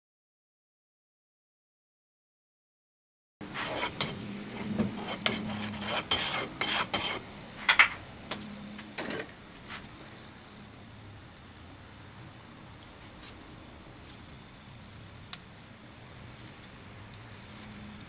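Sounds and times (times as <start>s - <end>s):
metal bar scraping steel flask: 3.5s - 7.9s.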